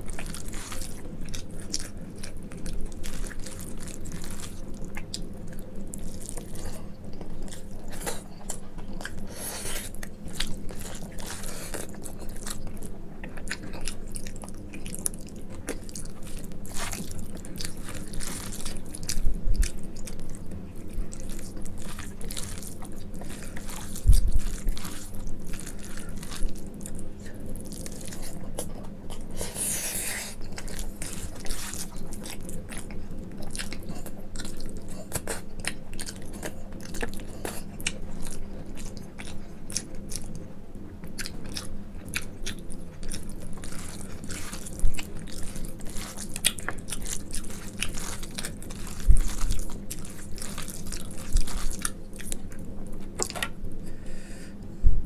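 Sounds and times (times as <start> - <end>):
wet chewing and lip-smacking: 0.0 - 40.4, 41.0 - 53.6
breathy hiss: 53.8 - 54.6.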